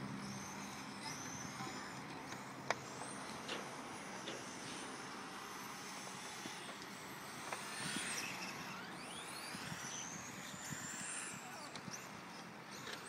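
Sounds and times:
outdoor background noise: 0.0s - 13.0s
toy car motor whining: 0.0s - 13.0s.

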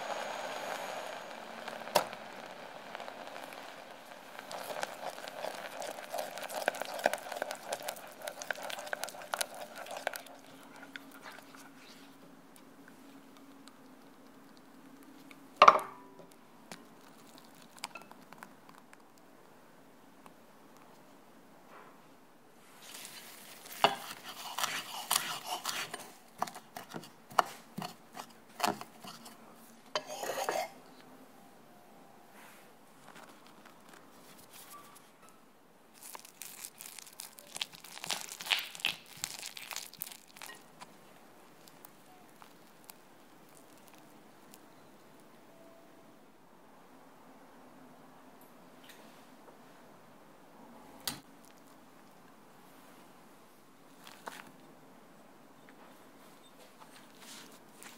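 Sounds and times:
faint steady hum: 0.0s - 57.9s
spatula scraping saucepan: 23.7s - 29.4s, 30.0s - 30.8s.

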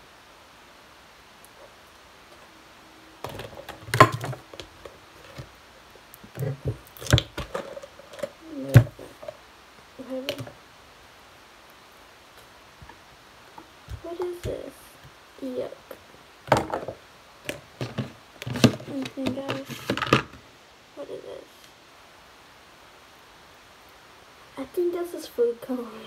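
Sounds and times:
plastic containers clattering: 3.2s - 5.5s, 6.2s - 9.4s, 16.5s - 20.4s.

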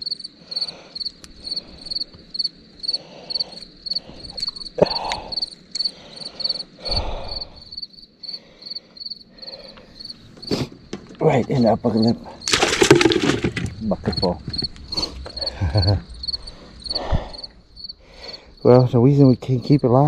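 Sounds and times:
cricket chirping: 0.0s - 20.0s
hands handling fish and tackle: 12.5s - 13.8s.

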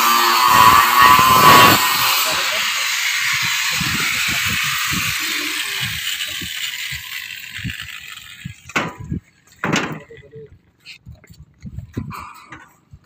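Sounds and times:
electric power tool whirring: 0.0s - 9.6s.

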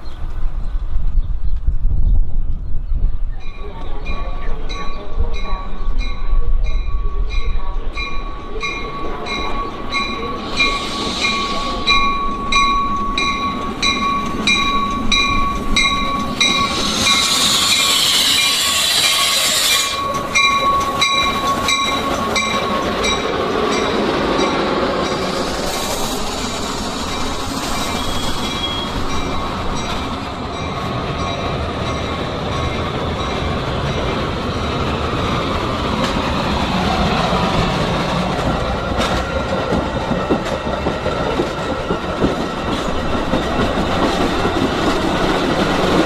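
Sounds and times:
train high whine: 3.2s - 46.0s
train bell ringing: 3.3s - 37.5s
loud air hiss: 10.3s - 12.2s, 16.6s - 20.0s, 25.2s - 29.1s.

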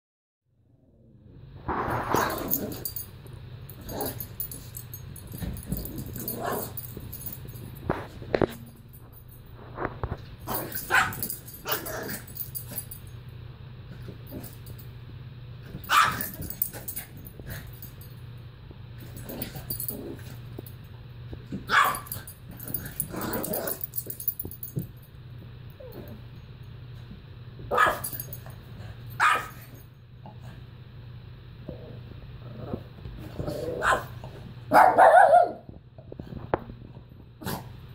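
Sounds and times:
small dog barking: 10.5s - 12.2s, 15.9s - 16.4s, 21.7s - 22.1s, 27.7s - 28.2s, 29.2s - 29.6s, 33.8s - 35.7s.

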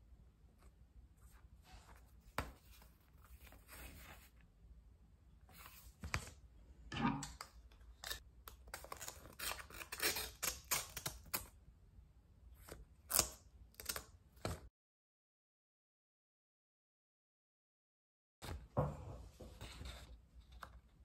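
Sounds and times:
scissors snipping paper: 7.4s - 11.5s.

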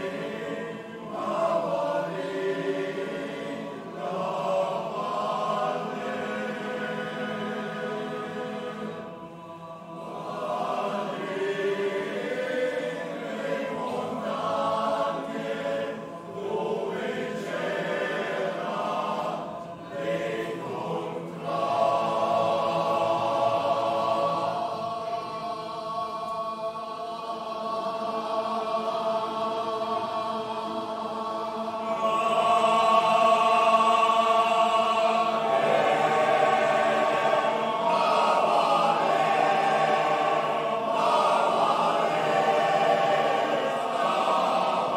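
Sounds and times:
men's choir singing unaccompanied: 0.0s - 44.9s.

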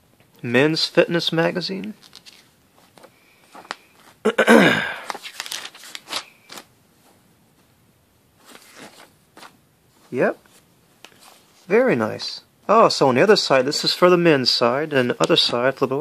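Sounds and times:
magazine pages rustling: 1.7s - 4.2s, 4.9s - 6.7s, 8.4s - 11.8s.

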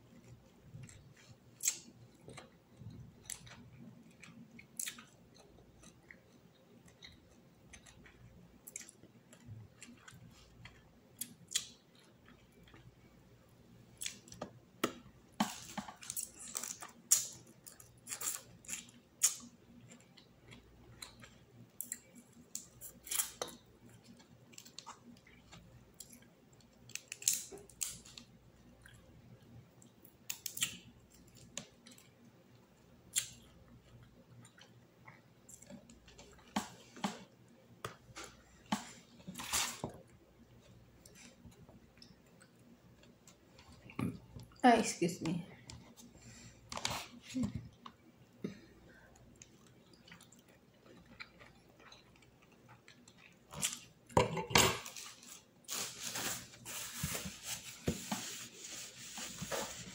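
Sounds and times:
chewing and mouth smacks: 49.1s - 54.2s.

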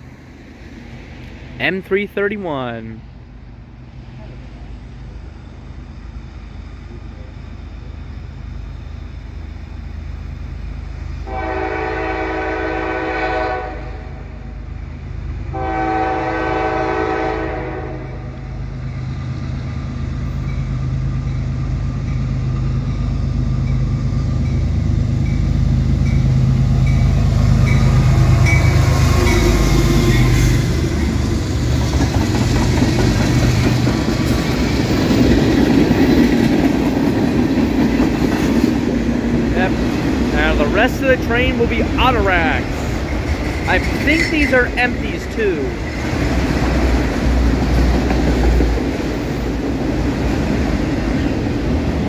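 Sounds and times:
diesel engines low rumble: 0.0s - 13.1s, 17.9s - 52.0s
locomotive air horn blasts: 11.2s - 14.2s, 15.5s - 18.4s.

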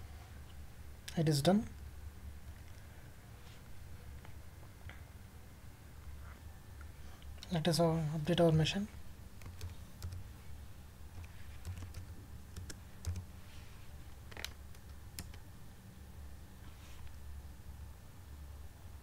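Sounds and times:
steady low hum: 0.0s - 19.0s
computer keyboard keystrokes: 9.4s - 10.3s, 11.2s - 13.3s, 14.3s - 15.4s.

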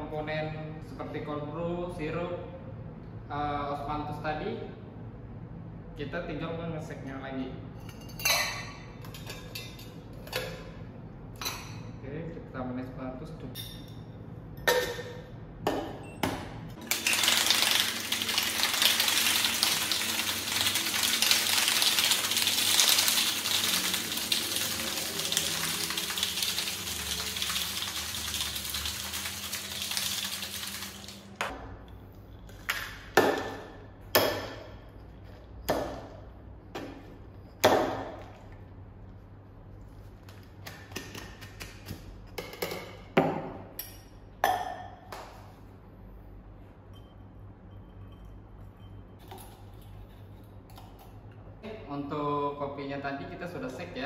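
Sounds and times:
ice rattling in metal shaker: 16.8s - 31.3s.

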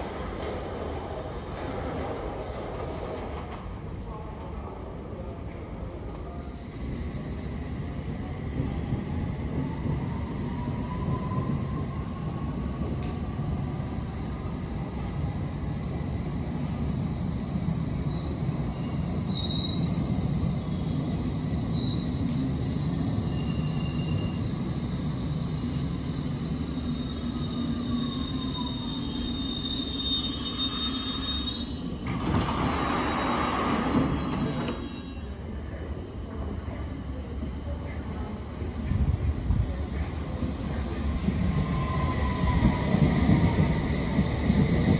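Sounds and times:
wheel and brake squeals: 18.2s - 19.9s, 26.2s - 32.0s
train rumble: 31.8s - 44.9s
doors sliding open with rush: 32.0s - 35.0s.

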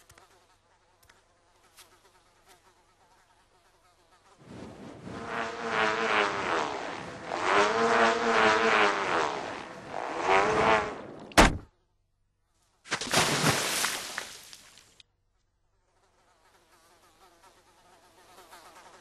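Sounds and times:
bullroarer whirring: 4.4s - 11.6s.

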